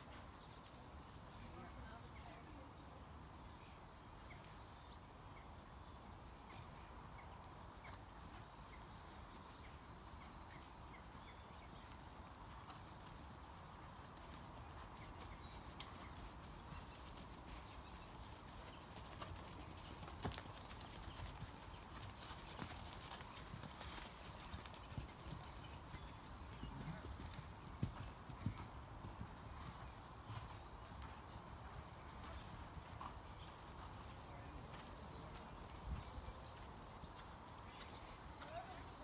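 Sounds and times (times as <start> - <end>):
horse hoofbeats on sand: 12.8 - 38.8.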